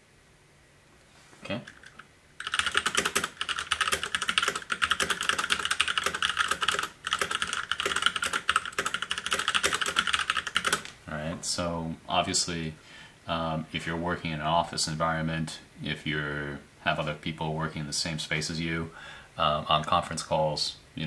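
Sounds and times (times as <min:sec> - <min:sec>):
fast typing on mechanical keyboard: 0:01.7 - 0:11.0.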